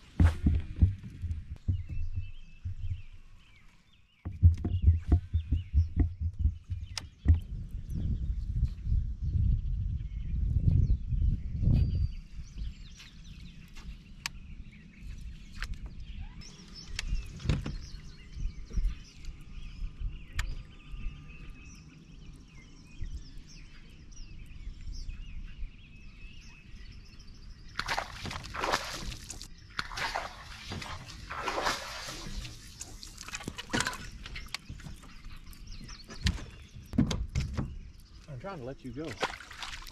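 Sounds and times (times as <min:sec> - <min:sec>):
birds chirping faintly: 0:00.0 - 0:39.9
low wind rumble: 0:00.0 - 0:39.9
fish splashing in water: 0:27.8 - 0:35.0, 0:39.1 - 0:39.9.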